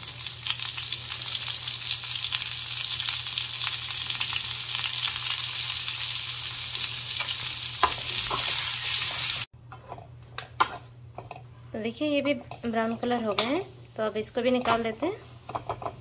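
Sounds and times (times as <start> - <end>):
vegetables sizzling in oil: 0.0 - 9.5, 12.4 - 16.0.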